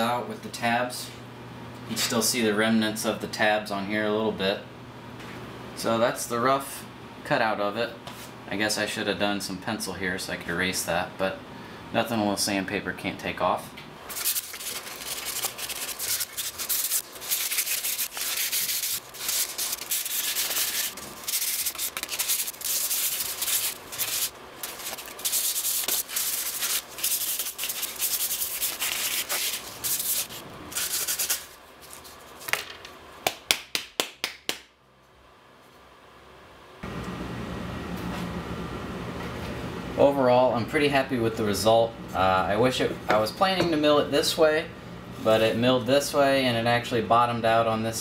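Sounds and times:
sandpaper rasping on wood: 14.1s - 31.5s.

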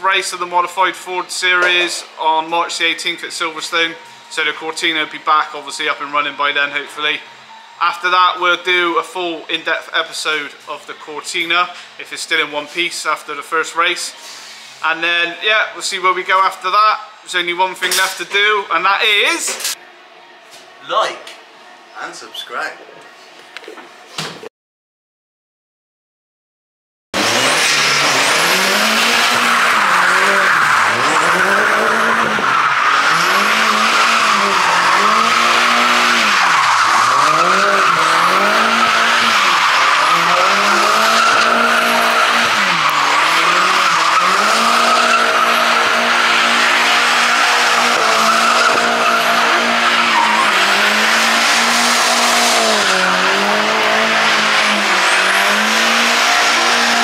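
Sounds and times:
car engine revving hard: 27.2s - 57.0s
tyres squealing: 27.3s - 57.0s.

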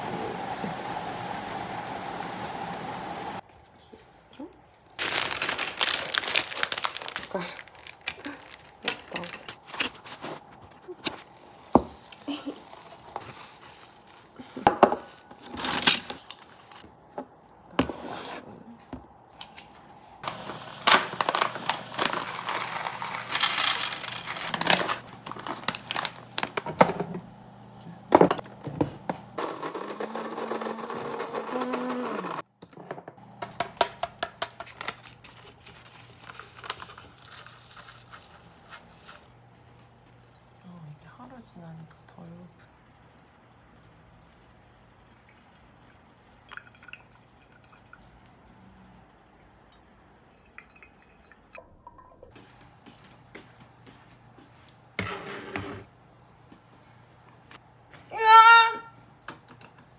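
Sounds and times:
paper filter rustling: 4.8s - 17.0s, 19.8s - 26.7s, 34.4s - 40.2s
plastic wrapping crinkling: 4.9s - 16.8s, 20.2s - 26.6s, 34.6s - 40.0s
coffee beans pouring rattling: 5.0s - 9.4s, 20.3s - 26.4s.

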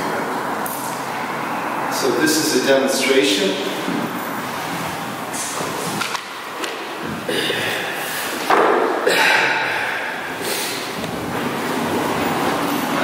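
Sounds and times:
sudden loud knock: 8.5s - 9.0s.

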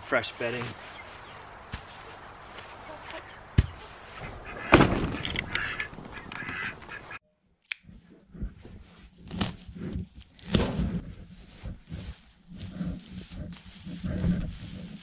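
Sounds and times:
straw rustling and crackling: 0.0s - 7.1s, 7.9s - 15.0s
hens clucking and squawking: 1.0s - 7.2s.

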